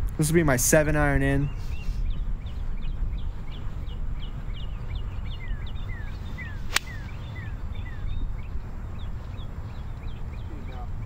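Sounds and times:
birds chirping: 0:00.0 - 0:11.0
wind on microphone: 0:00.0 - 0:11.0
falling bird whistles: 0:06.4 - 0:07.2
golf club striking ball: 0:06.7 - 0:07.1.

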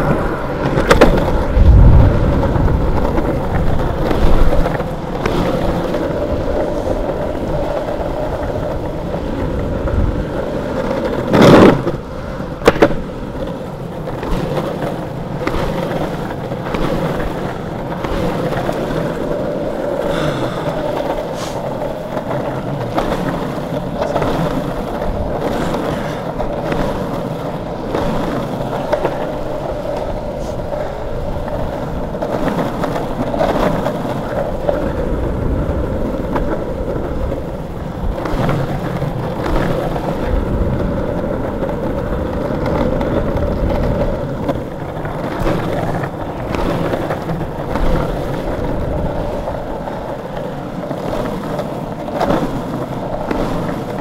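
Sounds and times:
longboard wheels rolling on asphalt: 0:00.0 - 0:54.0.

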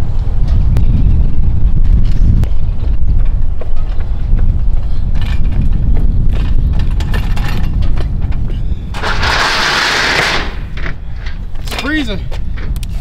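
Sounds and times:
wind rumbling on microphone: 0:00.0 - 0:13.0
hand truck rattling over asphalt: 0:05.1 - 0:12.1.

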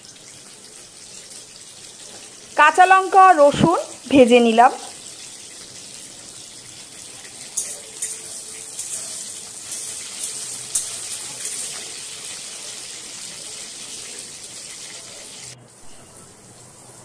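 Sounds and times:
garlic sizzling in hot oil: 0:00.0 - 0:17.0
spatula clicking and scraping: 0:07.6 - 0:12.4.

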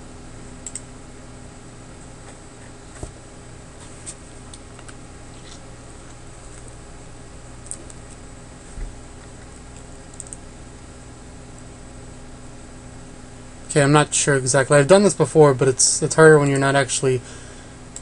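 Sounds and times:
low electrical hum: 0:00.0 - 0:18.0
mouse and keyboard clicks: 0:09.2 - 0:10.4.

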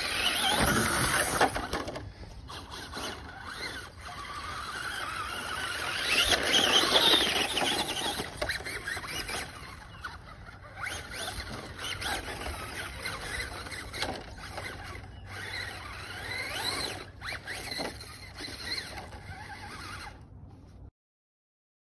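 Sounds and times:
rc truck motor whining: 0:00.0 - 0:20.4.

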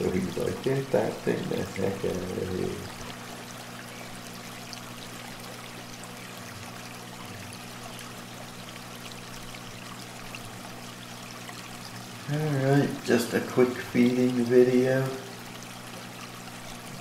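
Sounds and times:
aquarium filter water trickling: 0:00.0 - 0:17.0.

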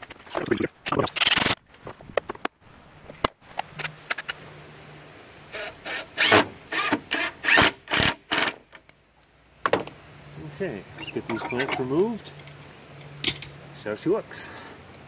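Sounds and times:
clamps scraping along pipes: 0:11.0 - 0:12.6.

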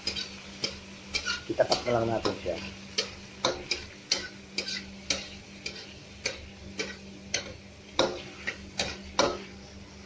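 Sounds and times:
metal spatula clicking on frying pan: 0:00.0 - 0:08.2
onion and garlic sauteing in oil: 0:00.0 - 0:10.0.

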